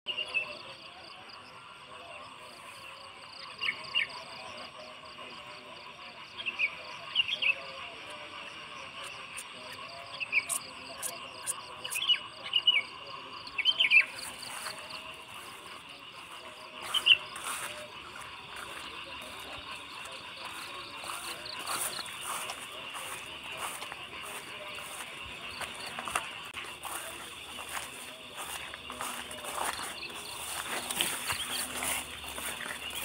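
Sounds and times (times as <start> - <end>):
pulsing insect trill: 0.1 - 33.0
bird chirps: 9.3 - 26.2.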